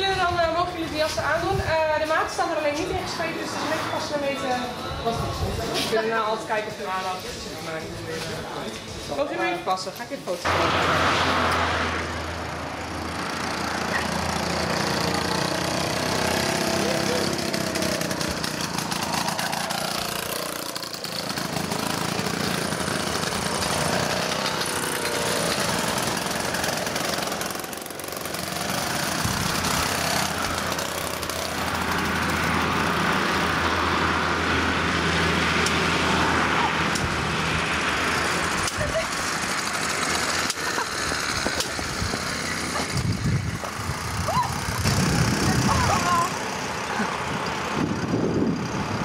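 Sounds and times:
mopeds buzzing past: 10.4 - 49.0.

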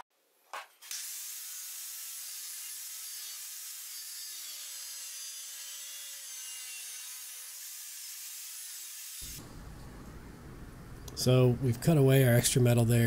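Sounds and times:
angle grinder cutting steel: 0.8 - 9.4.

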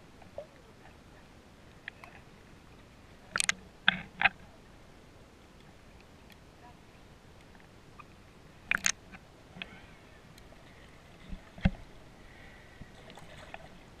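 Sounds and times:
sharp knocks and clicks: 8.7 - 9.0.

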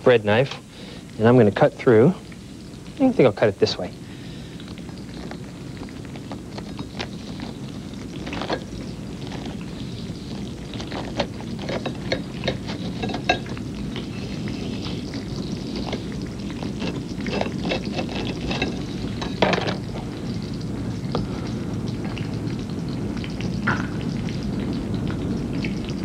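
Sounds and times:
steady low hum: 0.0 - 26.0
knife sawing through toast: 15.8 - 18.9.

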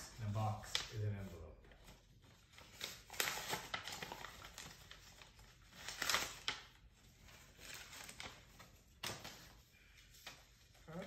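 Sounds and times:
paper rustling and crinkling: 0.0 - 11.0.

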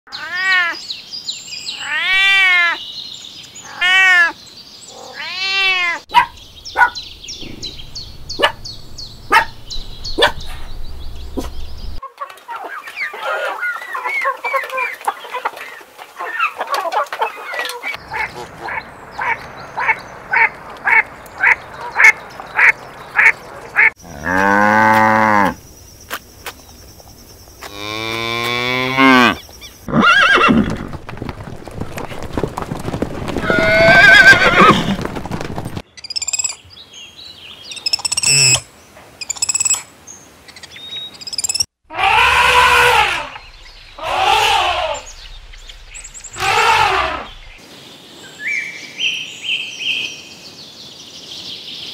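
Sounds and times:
chickens clucking: 11.4 - 24.0
cow mooing: 24.0 - 25.6.

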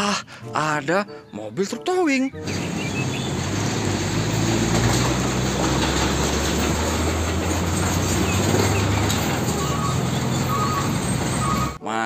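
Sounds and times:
road noise: 2.4 - 11.8
truck diesel engine passing: 2.4 - 11.8.

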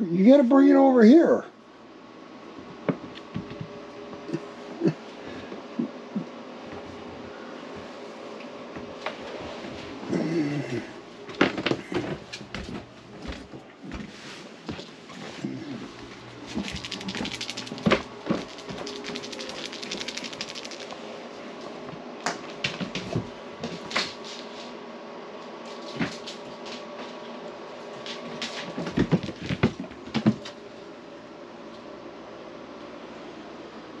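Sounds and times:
fan-like hum: 0.0 - 34.0
rapid fine clicking: 16.6 - 21.0.

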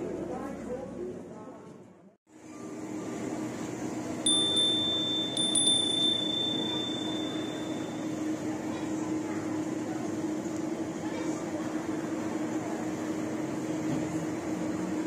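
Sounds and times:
low background hum: 0.0 - 15.0
high bell-like chime: 4.3 - 8.2.

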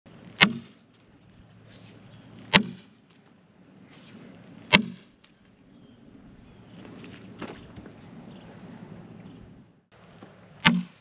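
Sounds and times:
sledgehammer striking steel wedge: 0.4 - 0.8, 2.5 - 2.9, 4.7 - 5.2, 10.6 - 11.0.

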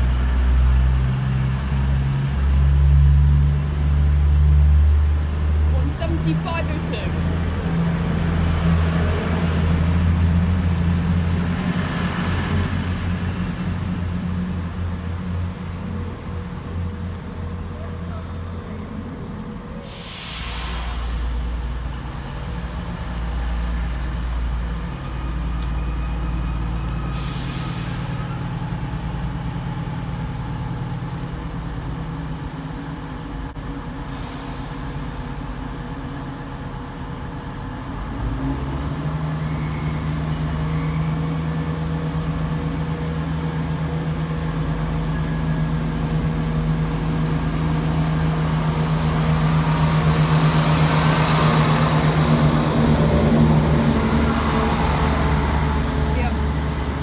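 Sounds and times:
diesel locomotive engine idling: 0.0 - 57.0
short hisses of air: 19.8 - 21.5, 34.1 - 35.6.

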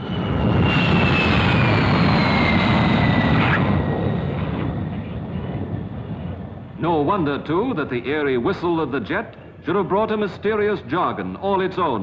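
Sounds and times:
jet aircraft flying past: 0.0 - 8.0.

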